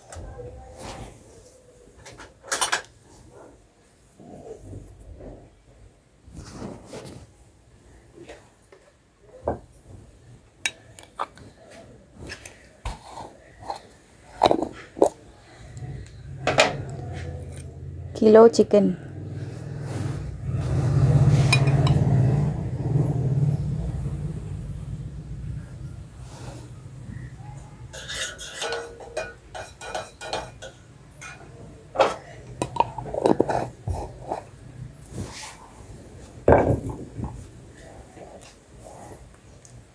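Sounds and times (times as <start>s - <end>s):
spoon clinking on steel pots: 21.5s - 22.1s, 27.9s - 33.5s.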